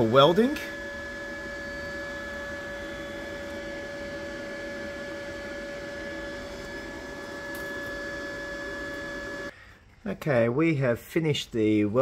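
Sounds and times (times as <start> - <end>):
machine hum: 0.0 - 9.5
constant high whine: 0.0 - 10.2.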